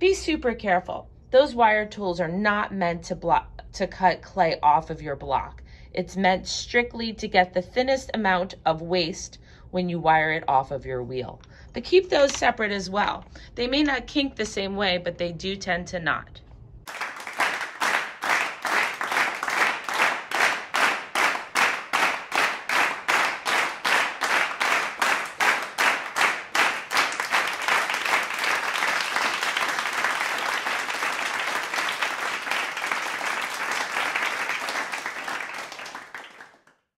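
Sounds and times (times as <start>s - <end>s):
crowd applause: 16.9s - 36.7s
crowd clapping in time: 16.9s - 36.8s.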